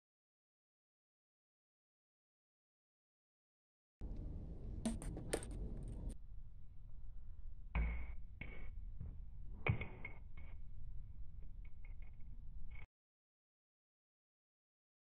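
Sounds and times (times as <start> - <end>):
steady low rumble: 4.0 - 9.6
ball tapping plastic bottle: 4.8 - 6.0
table tennis ball bouncing: 4.8 - 6.2, 7.8 - 8.7, 9.6 - 10.5.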